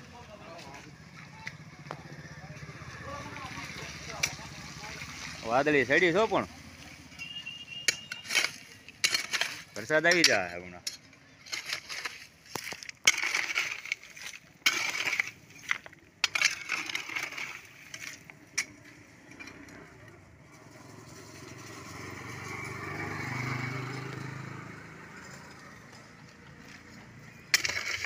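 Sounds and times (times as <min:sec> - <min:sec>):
hoe chopping stony soil: 0:07.9 - 0:18.9, 0:26.6 - 0:28.0.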